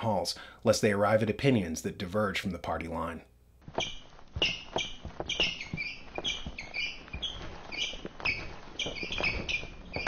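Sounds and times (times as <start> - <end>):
shuffling footsteps: 3.6 - 10.0
sneakers squeaking on hard floor: 3.6 - 10.0.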